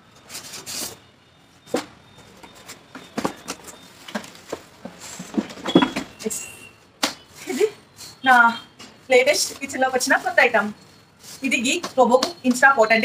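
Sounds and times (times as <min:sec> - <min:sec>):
knocks clicks and scrapes of cardboard: 0:01.7 - 0:06.2.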